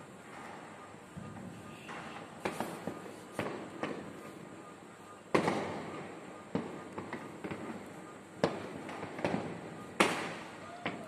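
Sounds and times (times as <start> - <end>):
fireworks bangs echoing: 0.0 - 11.0
small firework pops: 1.4 - 4.3, 5.3 - 11.0.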